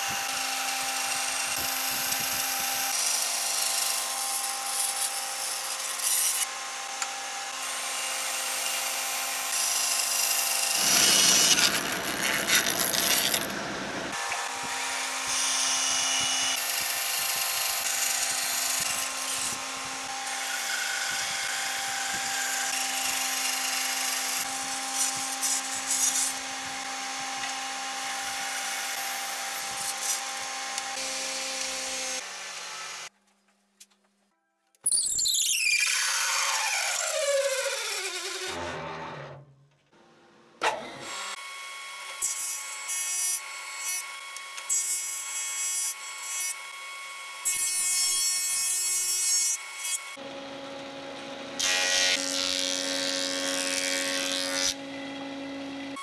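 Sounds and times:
bandsaw motor hum: 0:00.0 - 0:33.1, 0:50.0 - 0:56.0
saw blade cutting wood: 0:00.0 - 0:33.1, 0:34.9 - 0:39.4, 0:40.6 - 0:46.6.

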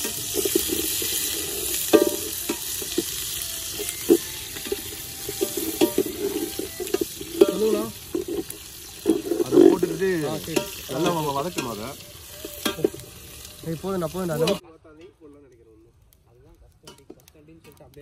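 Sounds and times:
ladle scraping and knocking pot: 0:00.0 - 0:11.8
onions sizzling in oil: 0:00.0 - 0:14.6.

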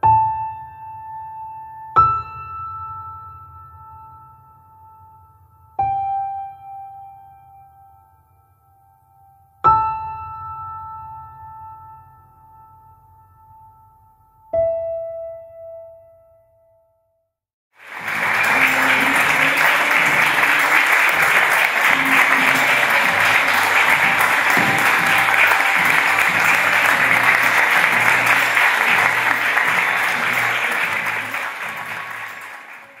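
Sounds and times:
audience applauding: 0:17.8 - 0:33.0.

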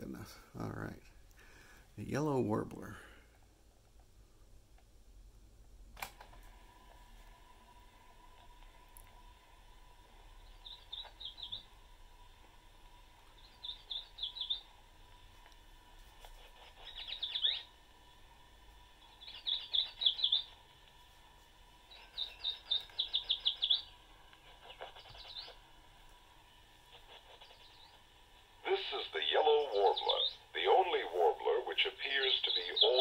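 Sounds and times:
faint steady tone and hiss: 0:00.0 - 0:33.0
bird song through small speaker: 0:10.4 - 0:11.7, 0:13.3 - 0:14.7, 0:16.7 - 0:17.8, 0:19.0 - 0:20.6, 0:21.9 - 0:24.0, 0:24.6 - 0:25.6, 0:27.0 - 0:28.0, 0:28.6 - 0:33.0.

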